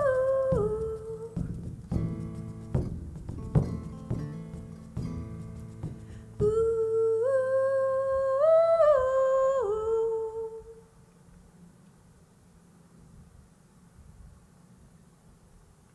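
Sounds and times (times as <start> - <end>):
woman humming: 5.9 - 10.9.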